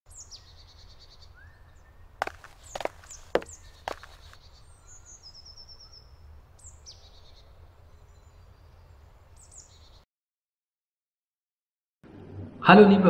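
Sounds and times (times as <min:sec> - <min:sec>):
birds calling: 0:00.1 - 0:10.0.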